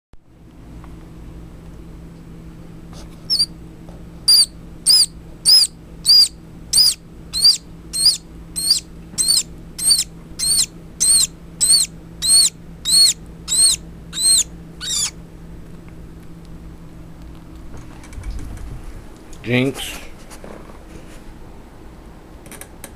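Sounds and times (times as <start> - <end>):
baby squirrel squeaking: 3.2 - 3.6, 4.3 - 15.2.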